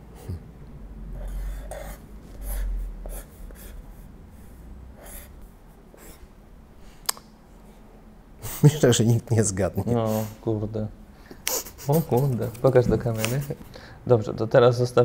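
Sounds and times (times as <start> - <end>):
pen scratching on paper: 1.3 - 4.0, 5.0 - 5.3, 5.9 - 6.2.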